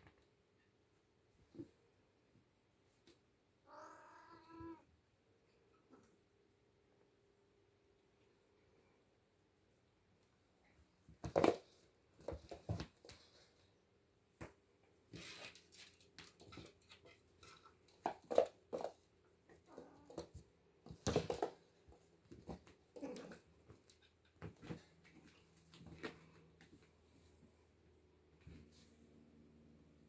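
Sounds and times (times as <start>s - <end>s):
kittens scrambling and play-fighting: 10.8s - 13.8s, 14.4s - 27.5s.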